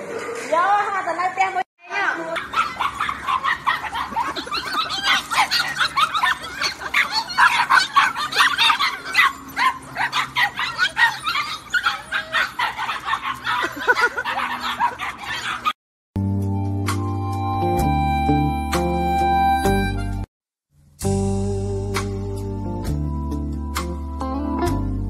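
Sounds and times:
puppies yapping: 2.3s - 15.8s.

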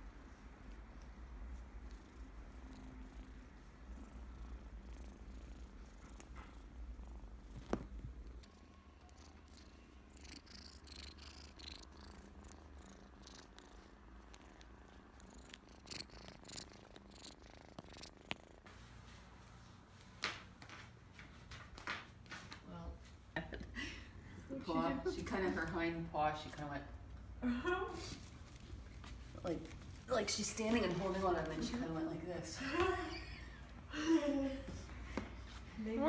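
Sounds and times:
kitten purring: 0.0s - 18.7s
faint clicks and rustles: 0.0s - 23.4s, 25.2s - 33.9s.

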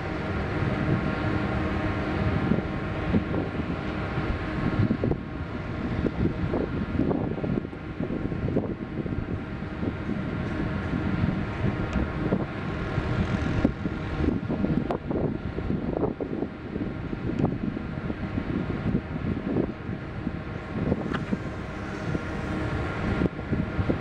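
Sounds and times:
steady mechanical hum: 0.0s - 24.0s
wind buffeting microphone: 0.0s - 24.0s.

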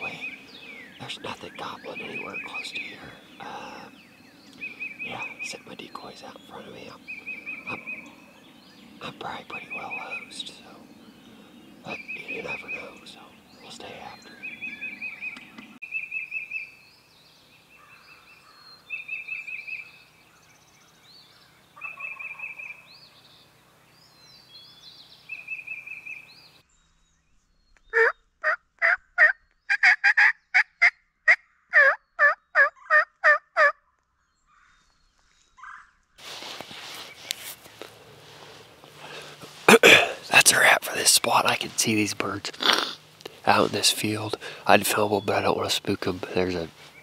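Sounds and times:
songbird trilling: 0.0s - 26.6s
turkey yelps: 28.0s - 33.8s, 35.6s - 35.9s
rustling: 36.2s - 40.3s.

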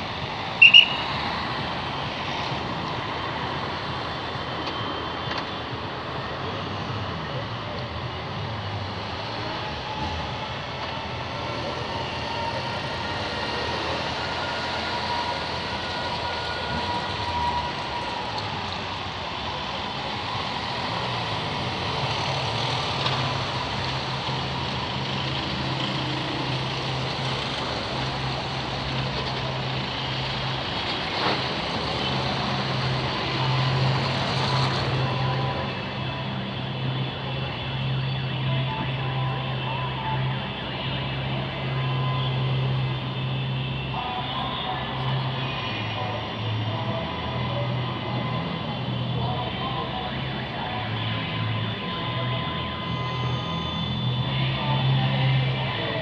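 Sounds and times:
vehicle engines running: 0.0s - 56.0s
tyre noise on wet road: 9.0s - 36.2s.

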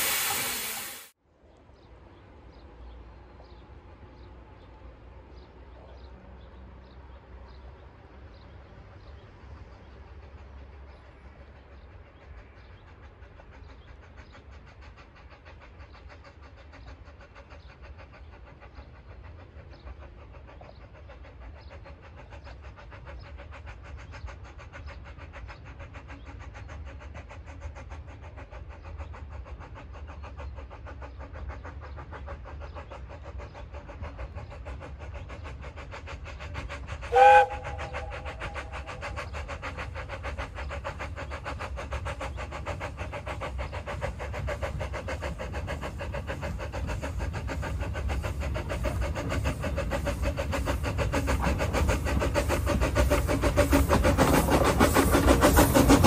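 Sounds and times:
steam whistle blast: 0.0s - 1.1s, 37.1s - 38.4s
steam train running: 0.0s - 56.0s.

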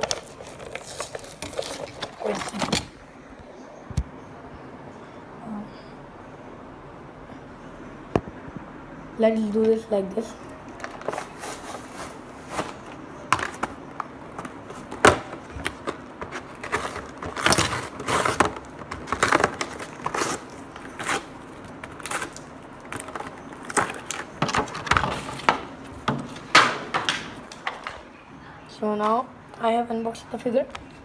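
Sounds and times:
packaging crackling and rustling: 0.0s - 3.0s, 10.7s - 28.1s
packaging snapping: 0.0s - 3.0s, 10.8s - 25.7s.

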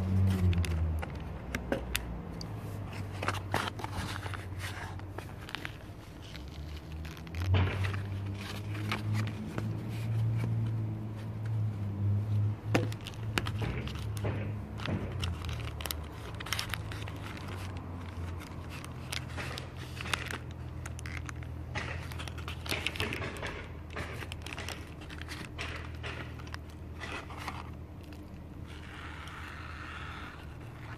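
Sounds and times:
plastic bag crinkling: 3.1s - 9.8s, 12.9s - 28.9s.

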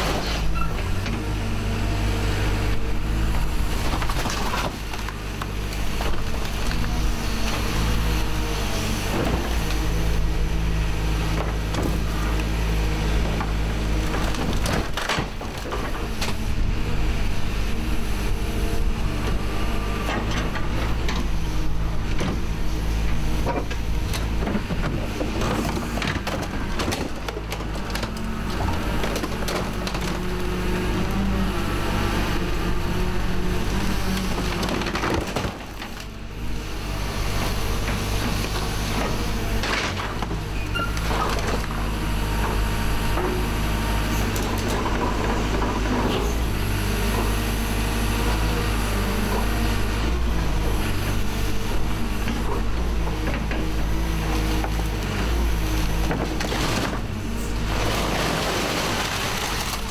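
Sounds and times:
excavator engine and hydraulics: 0.0s - 59.9s
metal and plastic crunching: 3.7s - 7.6s, 13.2s - 16.4s, 22.0s - 30.6s, 33.6s - 36.2s, 37.4s - 43.6s, 50.9s - 59.9s.

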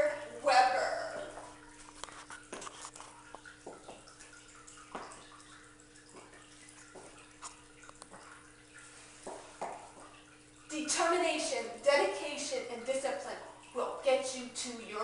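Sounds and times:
faint clicks and knocks: 6.1s - 8.3s.

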